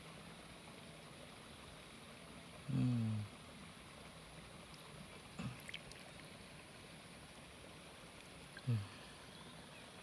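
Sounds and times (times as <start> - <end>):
faint background hiss: 0.0 - 10.0
short vocal sound: 2.7 - 3.3, 8.6 - 9.1.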